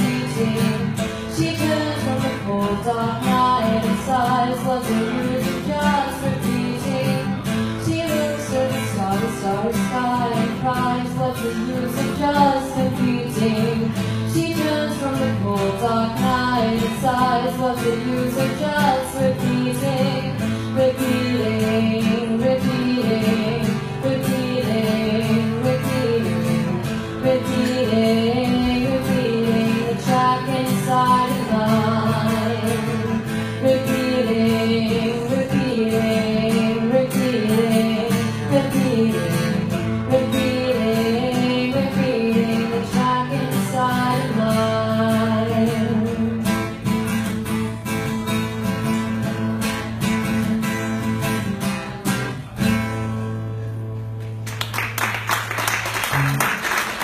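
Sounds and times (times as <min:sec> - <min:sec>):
woman singing: 0:00.0 - 0:47.3
strummed acoustic guitars: 0:00.0 - 0:57.0
applause: 0:54.3 - 0:57.0.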